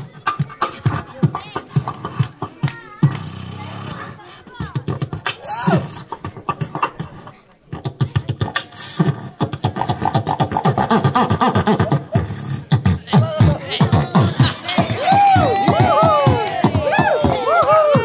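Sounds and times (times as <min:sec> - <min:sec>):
boy beatboxing: 0:00.0 - 0:18.0.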